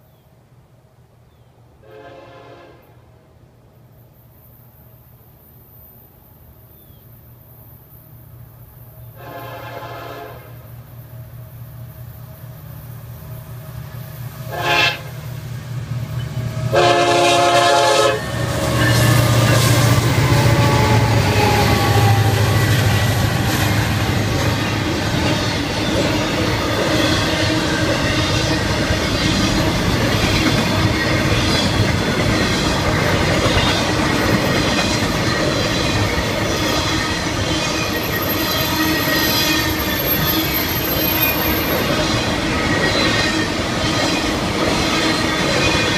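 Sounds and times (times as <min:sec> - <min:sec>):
train horn blasts: 0:01.8 - 0:03.1, 0:09.1 - 0:10.7, 0:14.4 - 0:15.3, 0:16.2 - 0:25.7, 0:36.8 - 0:43.6
locomotive engine rumble: 0:10.9 - 0:45.9
train wheel clatter: 0:15.2 - 0:45.9.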